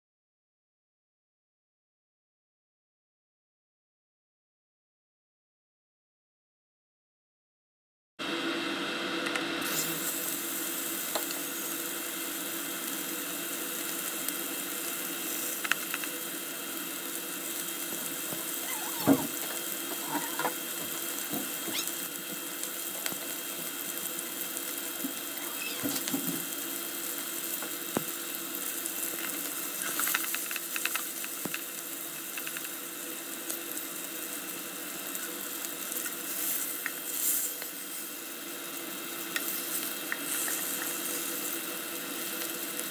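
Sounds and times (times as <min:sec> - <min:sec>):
patty sizzling in a skillet: 0:09.6 - 0:42.9
pops and crackles: 0:29.2 - 0:32.8.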